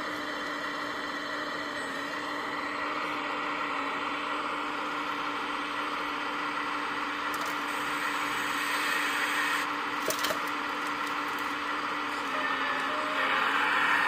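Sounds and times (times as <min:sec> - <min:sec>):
hydraulic pump whining: 0:06.6 - 0:14.0
stones clattering into truck bed: 0:10.0 - 0:11.1.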